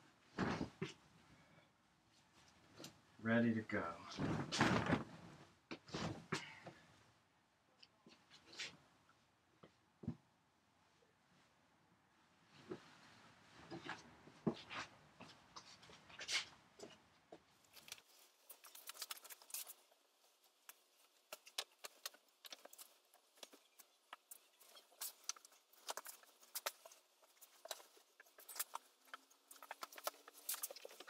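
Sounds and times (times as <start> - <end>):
cotton sheet rustling: 4.1 - 6.2.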